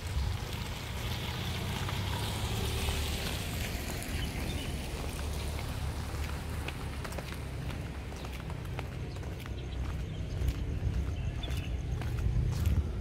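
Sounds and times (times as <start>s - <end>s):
tyre hiss on wet road: 0.0s - 6.9s
low street rumble: 0.0s - 13.0s.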